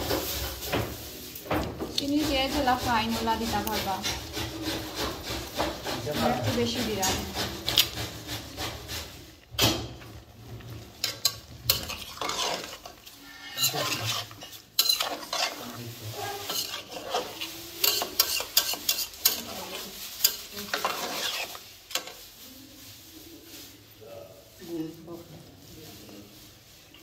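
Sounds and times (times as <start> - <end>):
utensil scraping a pan: 0.0 - 23.9
low sizzle: 0.0 - 27.0.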